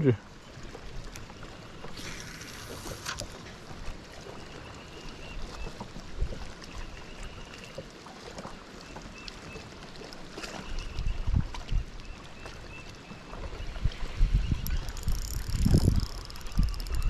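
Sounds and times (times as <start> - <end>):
water lapping against boat hull: 0.0 - 17.0
light wind: 8.4 - 17.0
spinning reel whirring and clicking: 14.5 - 17.0.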